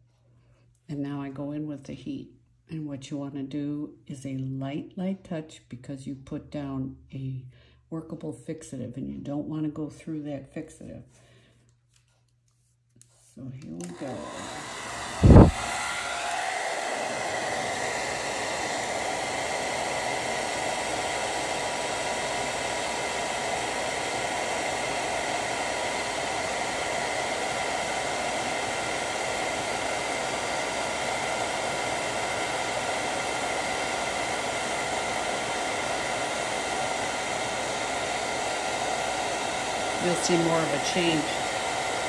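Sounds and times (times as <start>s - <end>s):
hair dryer blowing: 13.6s - 42.0s.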